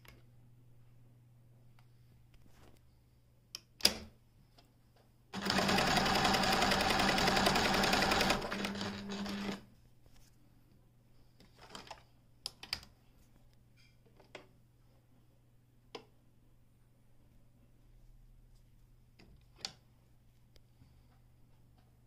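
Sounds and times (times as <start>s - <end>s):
sewing machine stitching: 5.4s - 9.6s.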